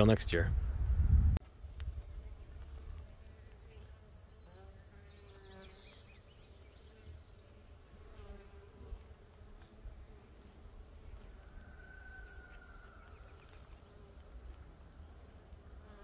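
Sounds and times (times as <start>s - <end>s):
bees buzzing: 3.0s - 16.0s
bird chirping: 4.0s - 7.5s.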